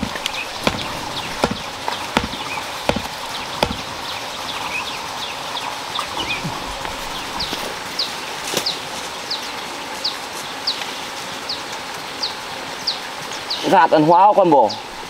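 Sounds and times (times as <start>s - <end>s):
hand tool knocking: 0.0s - 3.9s
small birds chirping: 0.0s - 11.6s.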